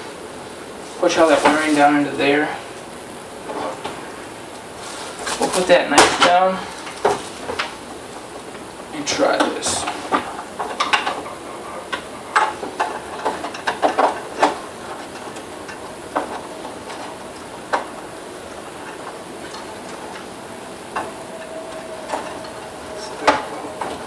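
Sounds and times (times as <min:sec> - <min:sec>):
wires rustling and clicking: 0:00.6 - 0:24.0.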